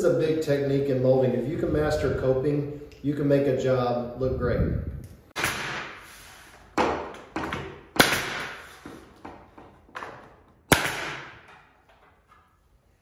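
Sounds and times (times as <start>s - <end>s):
pneumatic nail gun firing: 5.4s - 8.9s, 10.6s - 11.7s.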